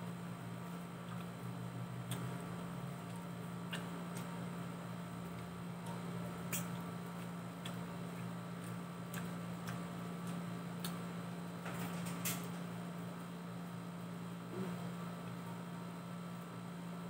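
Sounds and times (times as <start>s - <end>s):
steady low hum: 0.0s - 17.0s
chewing clicks: 1.0s - 1.3s, 2.0s - 2.4s, 3.0s - 4.4s, 5.2s - 11.0s
fingers picking at food: 2.0s - 4.4s, 5.2s - 11.0s
lip smacks: 3.1s - 4.3s, 6.4s - 11.0s.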